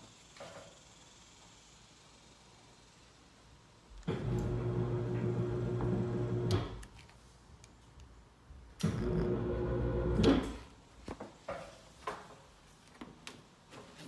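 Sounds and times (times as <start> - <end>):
electric hoist motor humming: 4.0 - 6.8, 8.8 - 10.6.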